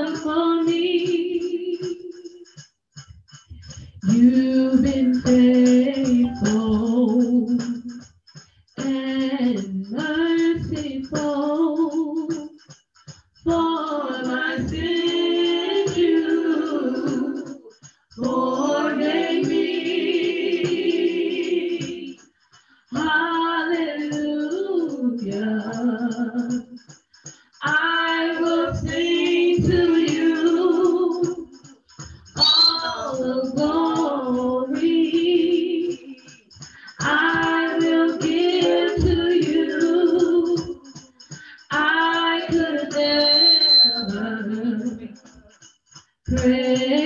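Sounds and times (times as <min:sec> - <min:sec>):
woman singing unaccompanied: 0:00.0 - 0:02.4, 0:04.0 - 0:08.0, 0:08.8 - 0:12.5, 0:13.5 - 0:17.6, 0:23.0 - 0:26.8, 0:27.6 - 0:31.5, 0:32.4 - 0:36.3, 0:36.9 - 0:41.0, 0:41.6 - 0:45.2, 0:46.3 - 0:47.0.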